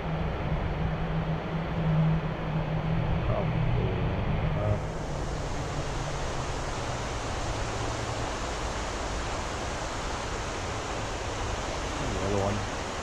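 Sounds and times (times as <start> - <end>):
river rushing: 4.2 - 13.0.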